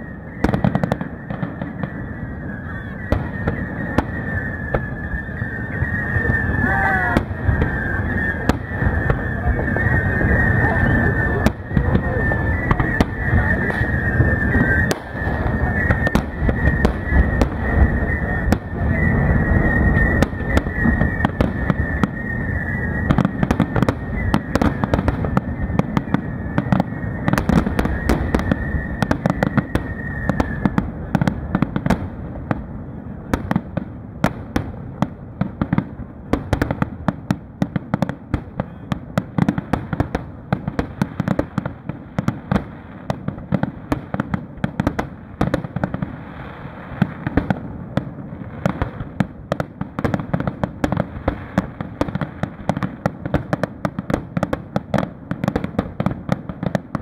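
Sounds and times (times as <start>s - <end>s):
high wavering whistle: 0.0s - 31.9s
firework booms: 0.0s - 57.0s
firework pops and crackles: 0.0s - 57.0s.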